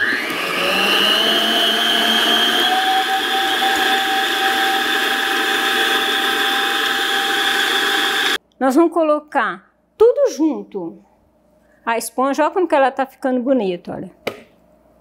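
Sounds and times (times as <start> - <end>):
electric stand mixer running: 0.0 - 8.4.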